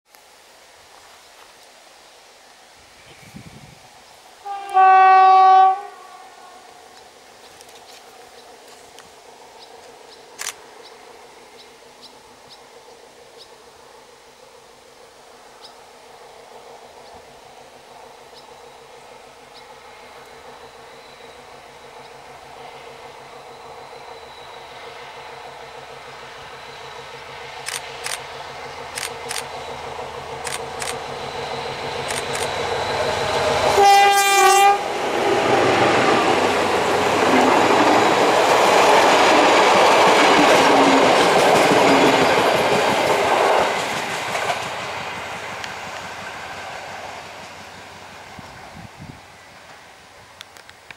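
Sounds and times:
train horn blast: 4.4s - 6.9s, 33.7s - 35.1s
train wheel noise: 4.4s - 50.9s
locomotive engine: 16.5s - 50.9s
sharp clicks: 27.6s - 28.3s, 28.9s - 29.5s, 30.4s - 31.0s, 32.0s - 32.6s.

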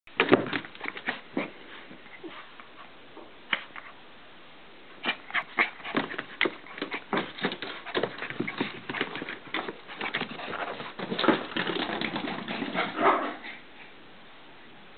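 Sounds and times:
puppies scuffling: 5.1s - 13.0s.

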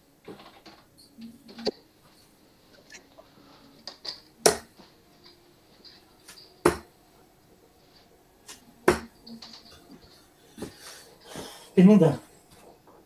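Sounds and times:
darts thudding into dartboard: 4.4s - 4.8s, 6.6s - 6.9s, 8.5s - 9.1s.

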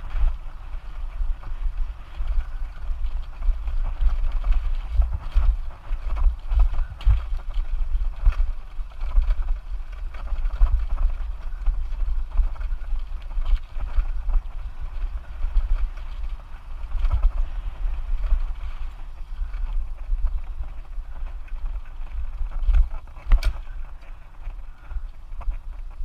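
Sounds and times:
bicycle rattling on bumpy trail: 0.0s - 26.0s
wind buffeting microphone: 0.0s - 26.0s.

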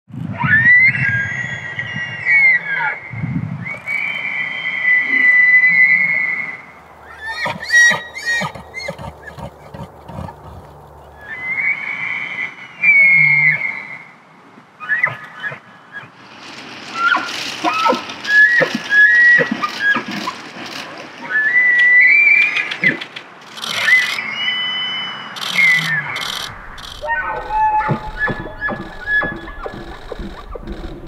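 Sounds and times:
elk bugling: 25.4s - 31.0s.

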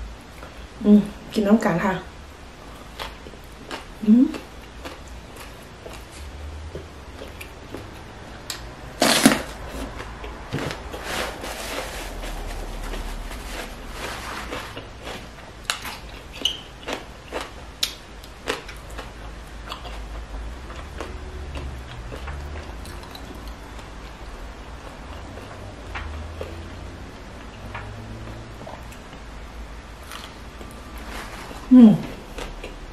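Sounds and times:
crunchy chewing with clicks: 2.7s - 11.0s, 14.0s - 32.9s
crunchy bite: 8.5s - 10.0s.

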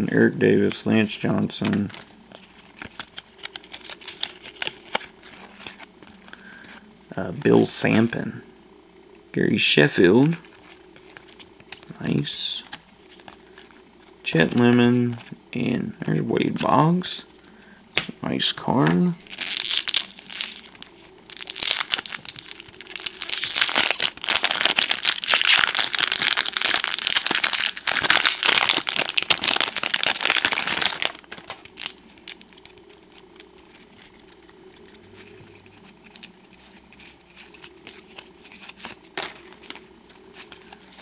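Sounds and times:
trading cards rustling: 0.7s - 8.2s, 10.0s - 15.4s, 18.7s - 41.0s
foil wrapper crinkling: 1.8s - 6.6s, 19.2s - 41.0s.

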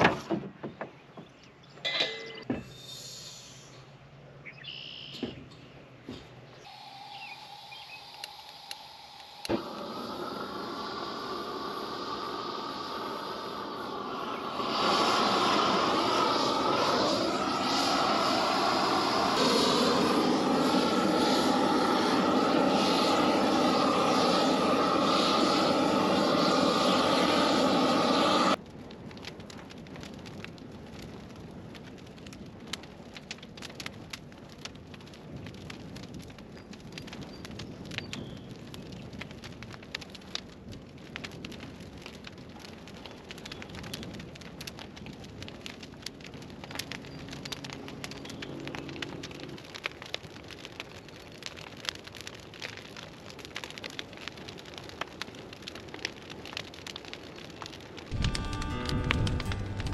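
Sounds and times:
brush fire crackling and popping: 6.2s - 59.9s
engine running: 6.7s - 28.6s, 58.1s - 59.9s.

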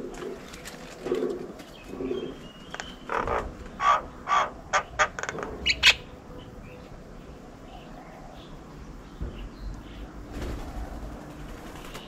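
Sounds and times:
dove cooing: 0.0s - 6.8s
harsh bird calls: 0.0s - 12.0s.

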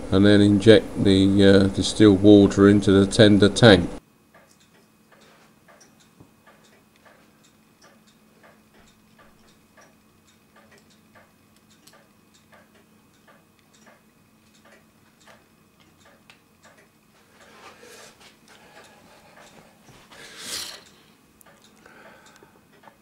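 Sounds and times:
low steady hum: 0.0s - 23.0s
faint regular ticking: 4.2s - 17.6s, 18.4s - 20.1s, 20.8s - 23.0s.

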